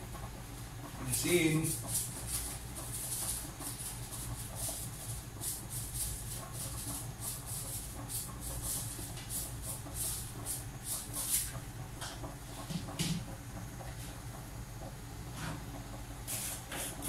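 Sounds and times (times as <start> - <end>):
seasoning shaker rattling: 1.0 - 11.5.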